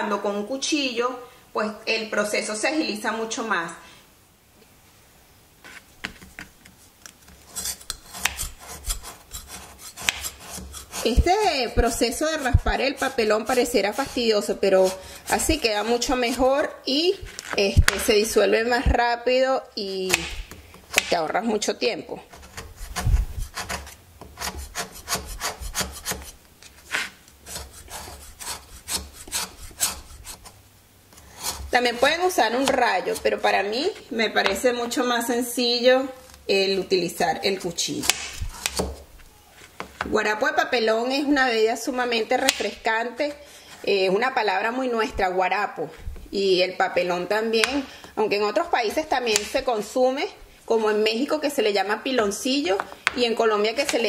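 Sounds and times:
knife scraping sugar block: 5.6s - 18.3s, 22.2s - 35.0s, 36.1s - 40.0s.

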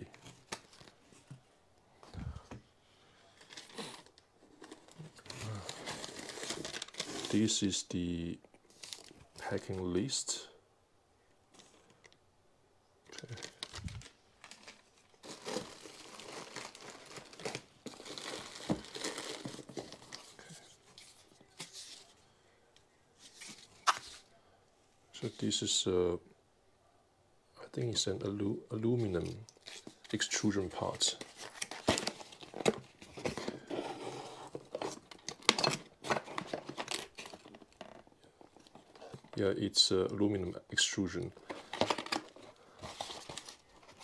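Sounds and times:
plastic packaging crinkling: 3.4s - 7.5s, 13.1s - 21.1s, 29.5s - 39.4s, 41.3s - 44.0s
cardboard rustling and scraping: 31.2s - 39.4s.

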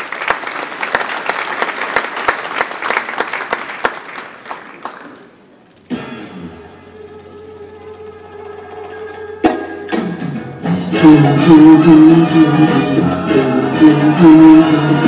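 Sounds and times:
audience applauding: 0.0s - 5.6s
show music: 5.1s - 15.0s.

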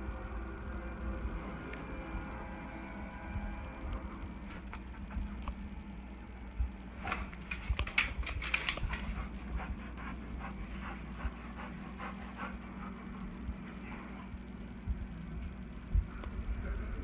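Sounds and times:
dog panting: 7.4s - 14.3s.

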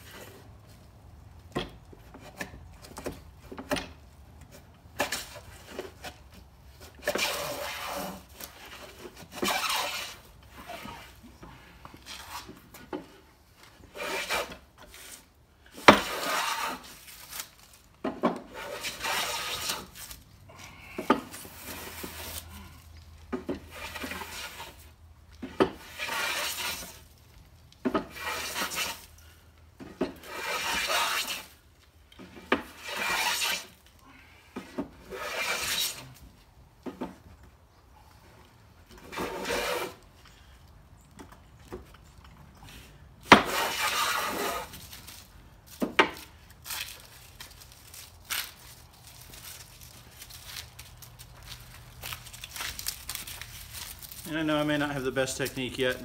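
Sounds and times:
hand plane shaving wood: 7.0s - 11.2s, 13.8s - 17.1s, 18.4s - 20.0s, 23.6s - 24.9s, 25.5s - 27.0s, 28.0s - 29.1s, 30.1s - 31.6s, 32.4s - 33.8s, 35.0s - 36.1s, 39.0s - 40.0s, 43.3s - 44.8s.

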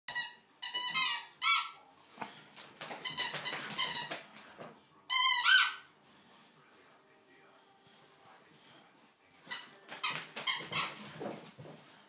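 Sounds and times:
squeaky dog toy squeaking: 0.1s - 1.8s, 3.0s - 4.2s, 5.1s - 5.9s, 9.5s - 11.0s.

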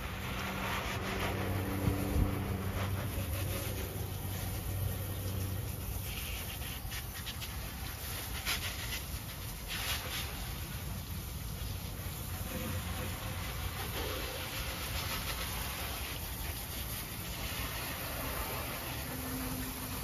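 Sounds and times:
hose spraying water on engine: 0.0s - 20.0s.

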